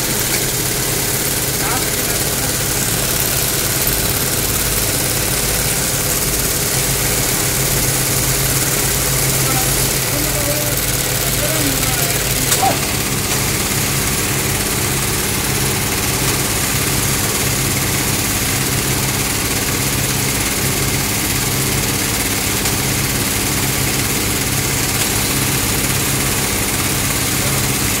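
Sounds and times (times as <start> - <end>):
embroidery machine stitching: 0.0 - 28.0.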